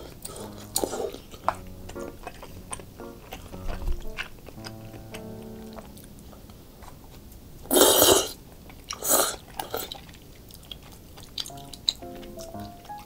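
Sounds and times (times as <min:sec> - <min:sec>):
chewing and mouth sounds: 0:00.0 - 0:13.0
person slurping food: 0:07.7 - 0:08.4.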